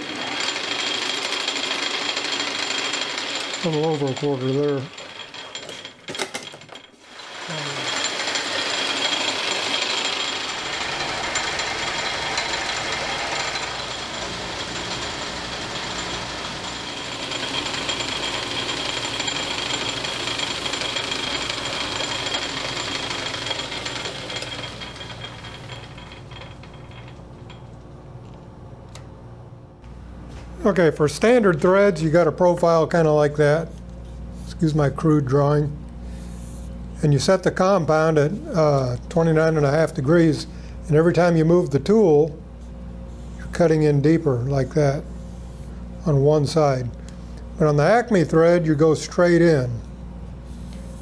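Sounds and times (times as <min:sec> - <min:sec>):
lathe tool cutting metal: 0:00.0 - 0:06.1, 0:07.0 - 0:27.2
metal lathe running: 0:00.0 - 0:27.8.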